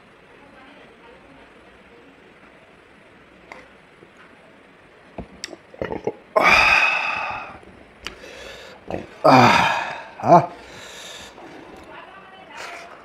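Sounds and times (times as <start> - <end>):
mouth clicks and smacks from eating: 5.3 - 6.2
breathy burp or exhale: 5.8 - 7.6, 8.4 - 10.6.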